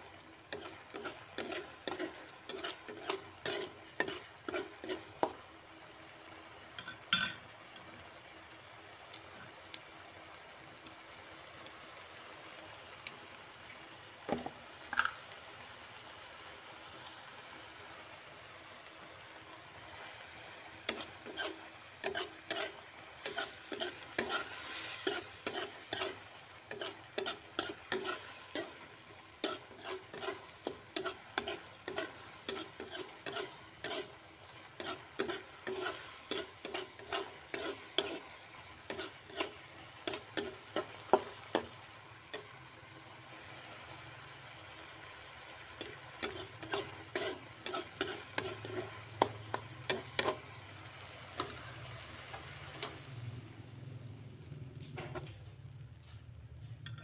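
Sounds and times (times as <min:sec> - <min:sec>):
food sizzling in a wok: 0:00.0 - 0:57.0
utensil scraping a wok: 0:00.2 - 0:05.5, 0:19.7 - 0:44.0, 0:44.7 - 0:53.1, 0:54.8 - 0:55.6.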